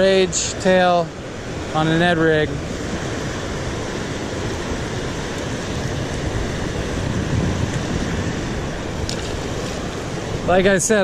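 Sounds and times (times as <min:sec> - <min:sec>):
fast river current rushing: 0:00.0 - 0:11.0.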